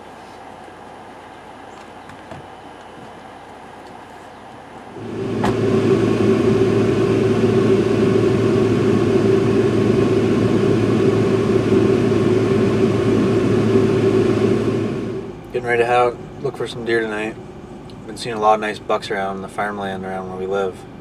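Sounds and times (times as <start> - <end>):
loud machine hum: 4.7 - 21.0.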